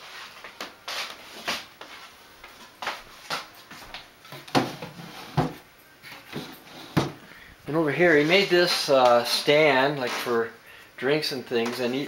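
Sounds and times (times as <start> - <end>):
faint room hiss: 0.0 - 12.0.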